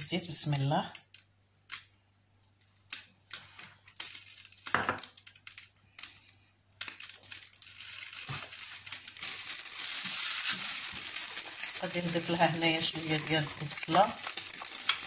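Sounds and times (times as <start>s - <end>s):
oil sizzling in a pan: 7.7s - 15.0s.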